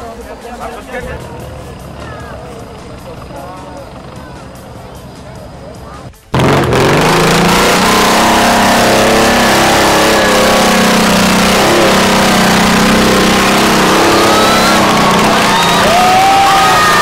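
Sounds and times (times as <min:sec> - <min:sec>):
jeep engine at high revs: 0:06.3 - 0:17.0
spectators shouting and whooping: 0:07.4 - 0:10.5, 0:12.9 - 0:17.0.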